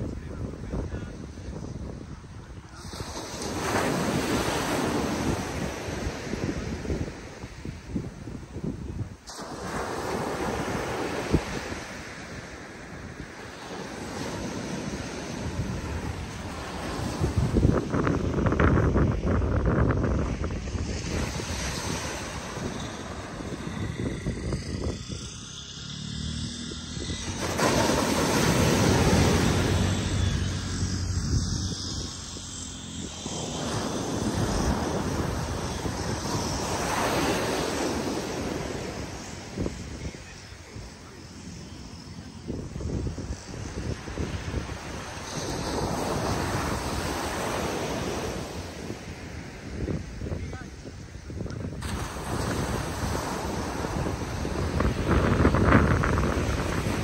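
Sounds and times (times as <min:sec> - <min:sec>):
surf washing onto beach: 0:00.0 - 0:25.7, 0:27.0 - 0:41.2, 0:42.1 - 0:57.0
wind on microphone: 0:00.0 - 0:57.0
low steady drone: 0:12.2 - 0:46.9.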